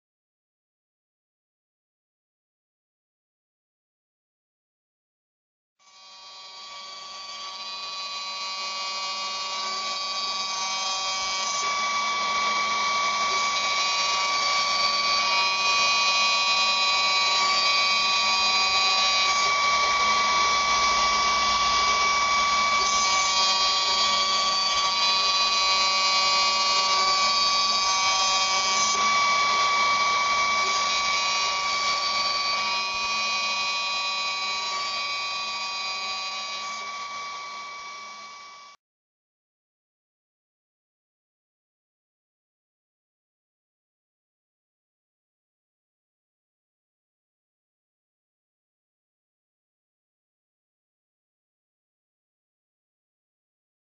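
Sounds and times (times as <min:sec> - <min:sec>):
high-pitched spindle whine: 0:05.8 - 0:38.8
milling cutting noise: 0:05.8 - 0:38.8.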